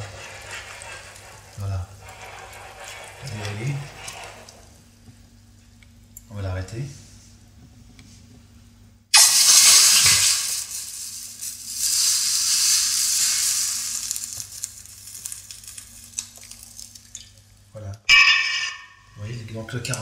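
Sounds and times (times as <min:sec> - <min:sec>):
hot pan hissing in cold water: 0:00.0 - 0:04.8, 0:09.1 - 0:17.0.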